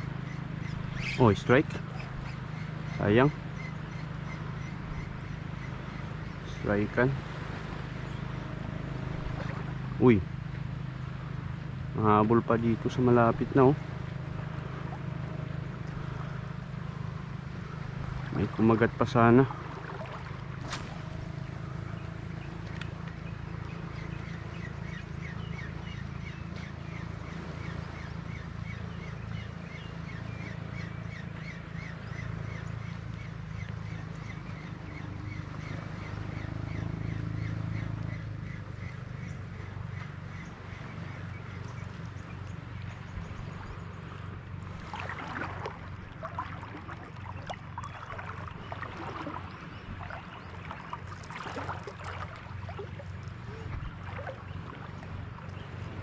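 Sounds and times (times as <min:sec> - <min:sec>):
bird chirping: 0:00.0 - 0:06.6
steady low rumble: 0:00.0 - 0:31.4, 0:40.4 - 0:56.0
small waves lapping: 0:00.0 - 0:56.0.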